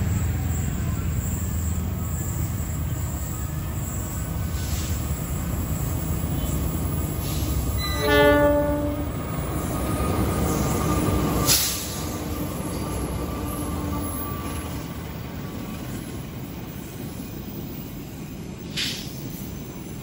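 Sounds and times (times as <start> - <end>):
locomotive engines rumbling: 0.0 - 19.9
rush of passing train: 0.0 - 20.0
train horn blast: 7.8 - 9.4.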